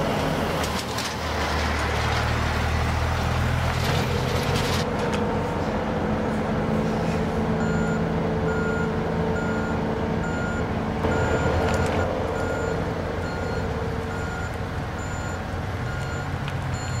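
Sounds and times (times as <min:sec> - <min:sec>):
heavy truck engine running: 0:00.0 - 0:17.0
vehicle backup alarm beeping: 0:07.6 - 0:17.0.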